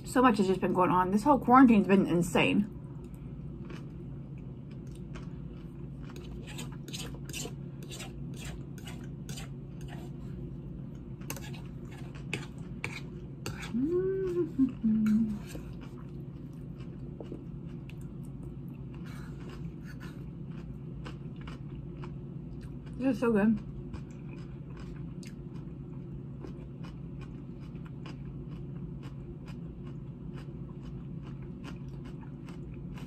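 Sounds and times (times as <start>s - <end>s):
low hum: 0.0s - 33.0s
soft chewing: 2.8s - 23.0s, 23.6s - 33.0s
utensil scraping a dish: 6.2s - 10.2s, 11.3s - 13.8s
person humming: 13.6s - 15.5s.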